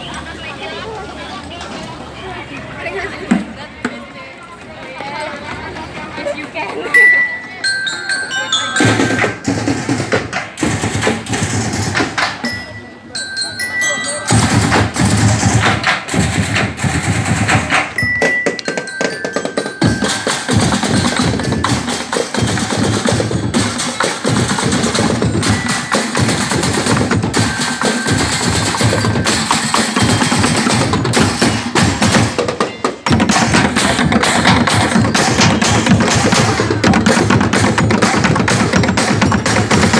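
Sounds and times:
drumming on plastic barrels: 8.6 - 12.6, 14.3 - 39.9.

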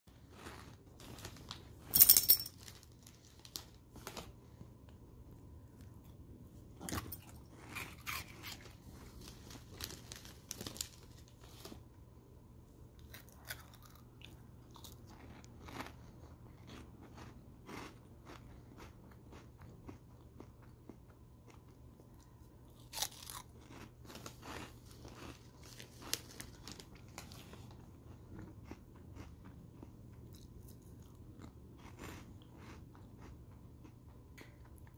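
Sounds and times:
person crunching snacks: 13.0 - 20.7, 21.5 - 33.3.

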